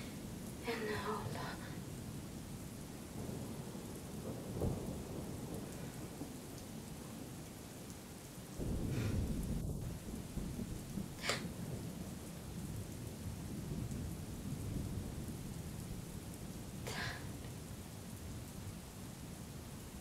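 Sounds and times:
rain hissing: 0.0 - 20.0
rolling thunder: 3.0 - 7.4, 8.5 - 18.8.

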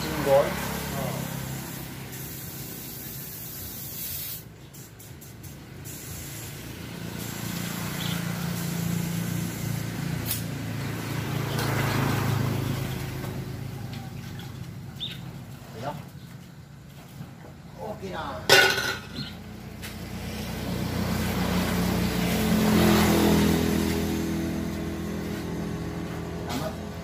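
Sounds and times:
pressure washer spray hissing: 0.0 - 10.9.

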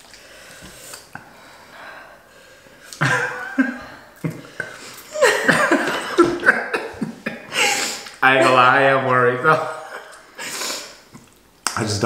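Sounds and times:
man and woman laughing: 3.0 - 10.6.

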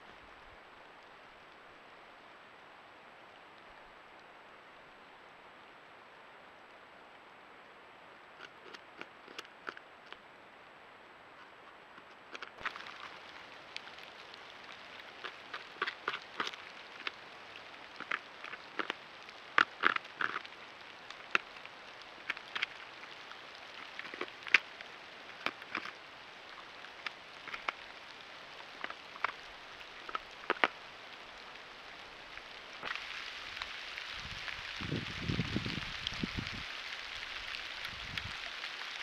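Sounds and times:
steady hiss: 0.0 - 39.0
beaver gnawing wood: 8.4 - 10.2, 11.4 - 30.9.

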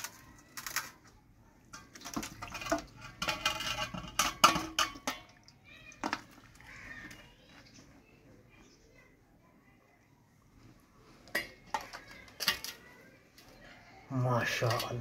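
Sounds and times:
clay pot scraping on steel: 1.7 - 5.3.

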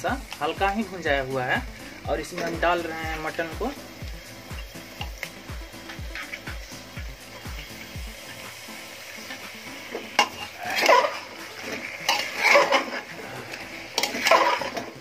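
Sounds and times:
metal spatula scraping pot: 5.8 - 8.5, 9.2 - 15.0.

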